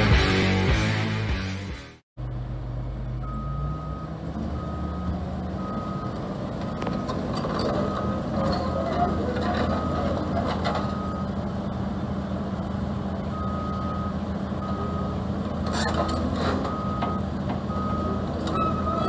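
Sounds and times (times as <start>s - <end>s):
excavator diesel engine running: 2.2s - 19.0s.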